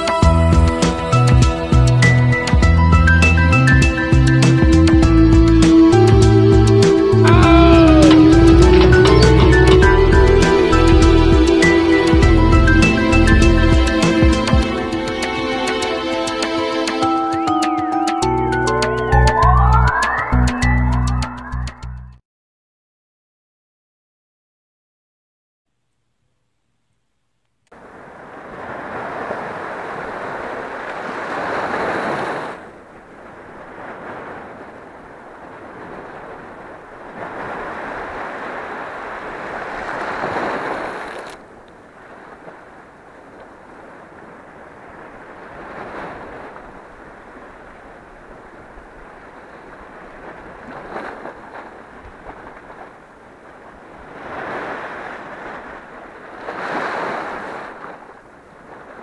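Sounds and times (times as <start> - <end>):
waves washing over rocks: 3.8 - 17.1, 27.8 - 59.0.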